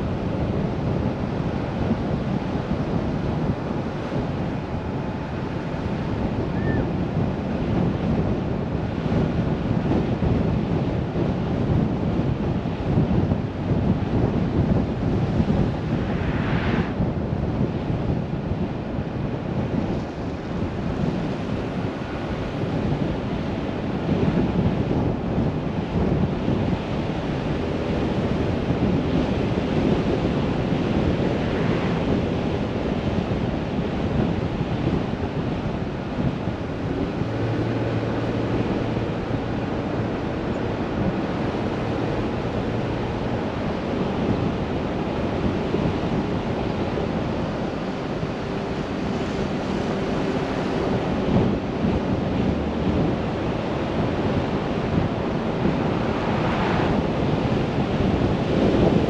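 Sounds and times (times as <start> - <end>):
faint engine hum: 0.0 - 59.0
wind rushing: 11.7 - 21.1, 28.3 - 59.0
car tyres on paved road: 29.5 - 59.0.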